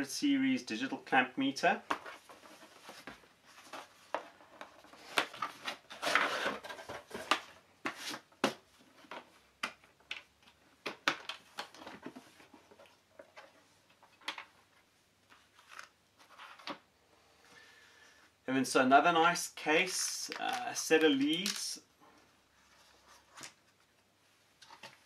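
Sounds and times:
paper and cardboard rustling: 0:01.9 - 0:09.3.

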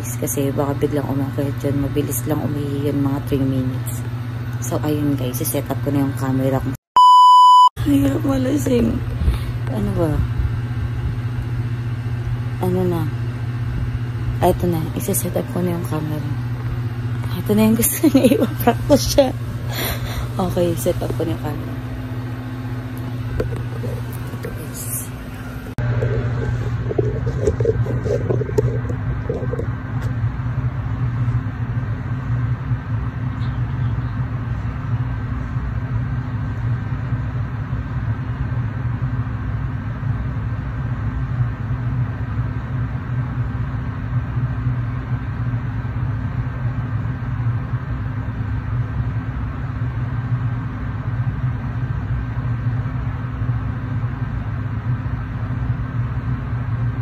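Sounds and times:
low machine hum: 0:00.0 - 0:57.0.

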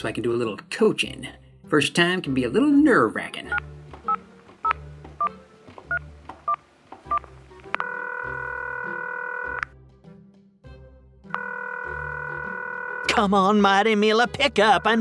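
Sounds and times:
telephone keypad dialing beeps: 0:03.5 - 0:09.6, 0:11.4 - 0:13.0
telephone ringing tone: 0:05.9 - 0:09.6, 0:11.3 - 0:13.2.

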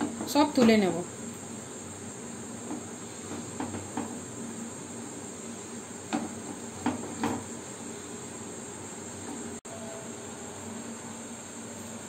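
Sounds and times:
steady high-pitched hiss: 0:00.0 - 0:12.0
utensils knocking against a pan: 0:02.6 - 0:04.2, 0:06.1 - 0:07.5.

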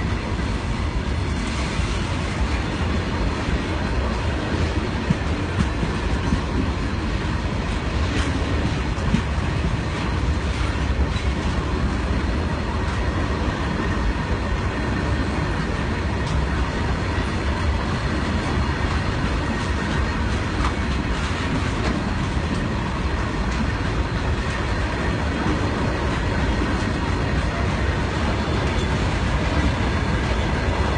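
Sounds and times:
train wheels rumbling on rails: 0:00.0 - 0:30.9.

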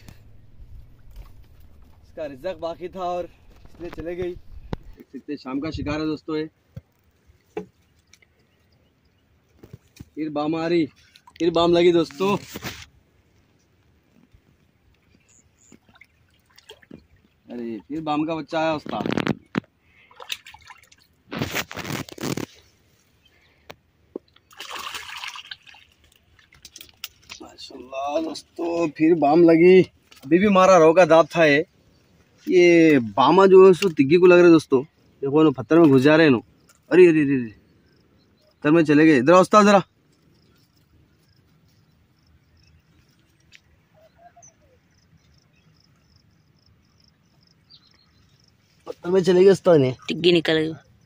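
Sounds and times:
water splashing and sloshing: 0:00.0 - 0:05.1, 0:06.6 - 0:29.1
insects chirping: 0:07.0 - 0:21.2, 0:21.8 - 0:51.0
faint bird chirps: 0:15.0 - 0:18.0, 0:34.7 - 0:51.0.

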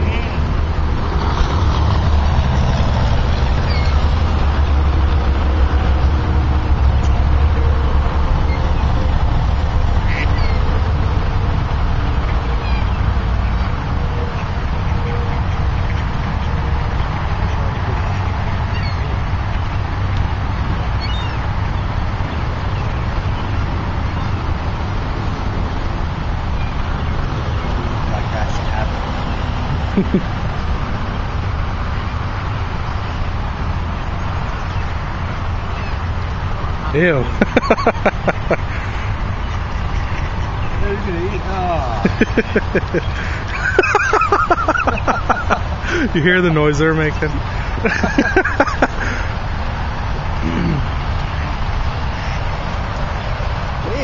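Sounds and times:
ducks quacking: 0:00.0 - 0:00.5, 0:08.4 - 0:10.8, 0:36.9 - 0:49.5, 0:50.4 - 0:53.2
steady low rumble: 0:00.0 - 0:53.9.

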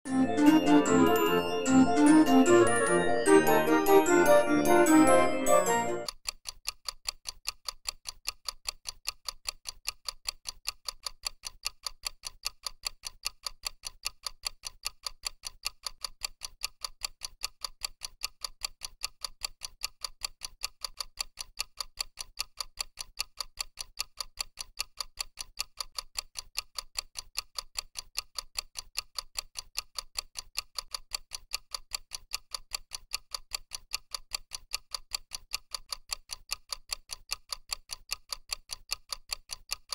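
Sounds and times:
fast timer ticking: 0:00.1 - 0:39.9.

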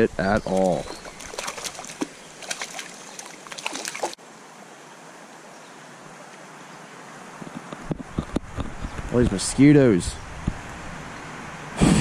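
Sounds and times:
fish thrashing splashes: 0:00.5 - 0:04.2
flowing stream rushing: 0:00.6 - 0:07.3.

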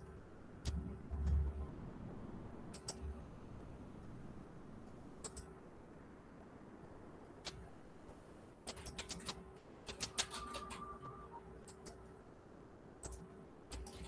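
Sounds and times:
computer keyboard typing: 0:08.7 - 0:12.0.

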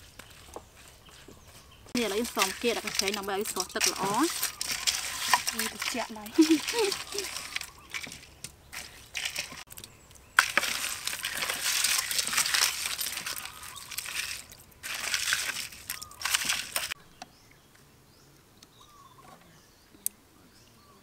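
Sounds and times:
wet crackling and rustling of shrimp: 0:00.0 - 0:17.0
faint bird chirps: 0:17.0 - 0:21.0.

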